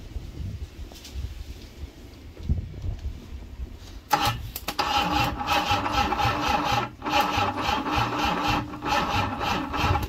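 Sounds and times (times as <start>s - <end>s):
car engine cranking with starter whine: 4.1s - 10.0s.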